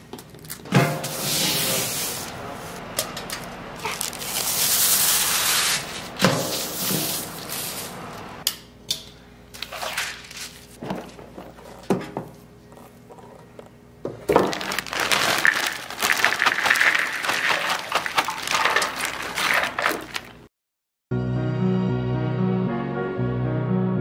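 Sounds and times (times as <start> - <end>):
thin paper rustling and crinkling: 3.8 - 8.0, 9.6 - 10.8, 14.3 - 20.4.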